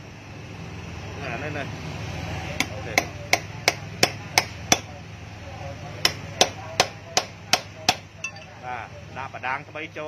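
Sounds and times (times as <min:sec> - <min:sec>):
hammer striking steel hub: 0:06.0 - 0:08.6.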